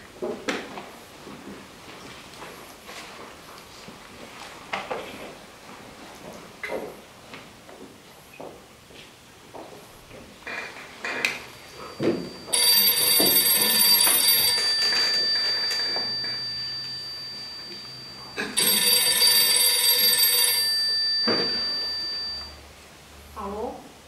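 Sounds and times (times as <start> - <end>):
telephone bell ringing: 11.6 - 22.6.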